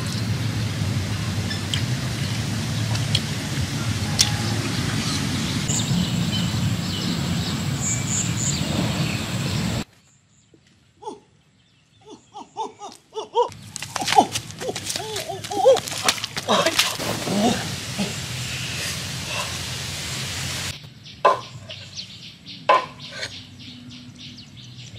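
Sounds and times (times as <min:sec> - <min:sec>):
outdoor background noise: 0:00.0 - 0:24.9
rustles: 0:13.5 - 0:20.9.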